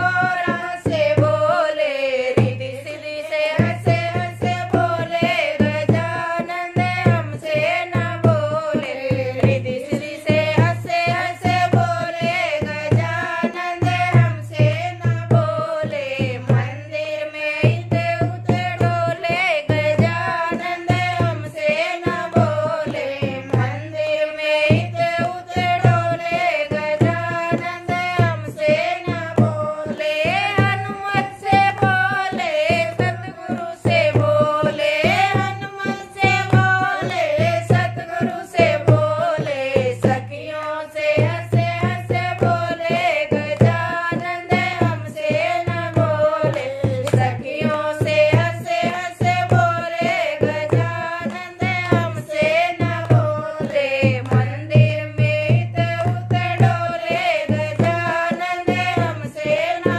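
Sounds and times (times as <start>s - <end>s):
women singing devotional song: 0.0s - 59.9s
hand clapping: 45.9s - 47.4s, 48.0s - 54.4s.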